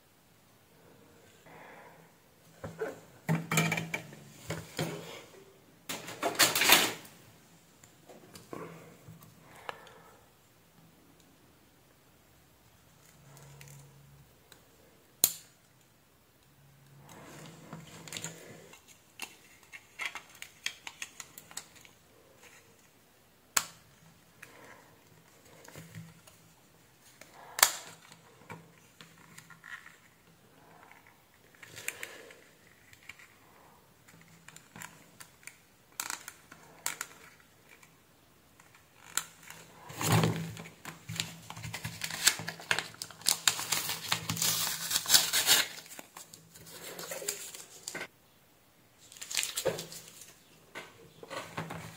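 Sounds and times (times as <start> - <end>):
masking tape peeling off paper: 41.2 - 47.9.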